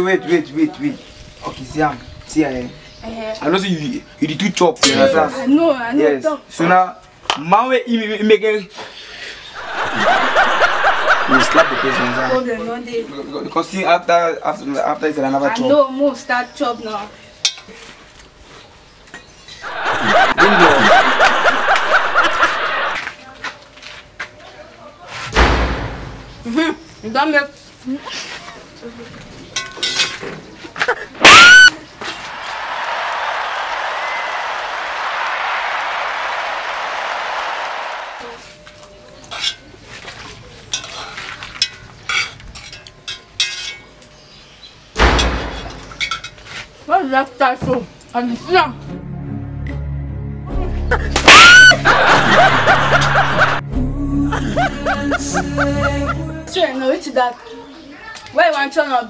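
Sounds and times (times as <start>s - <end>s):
loud laughter: 9.6s - 12.4s, 19.6s - 23.0s, 30.8s - 31.7s, 50.9s - 53.6s, 54.3s - 56.3s
metal spoons scraping a pot: 29.6s - 30.3s, 39.3s - 39.7s, 40.7s - 43.9s.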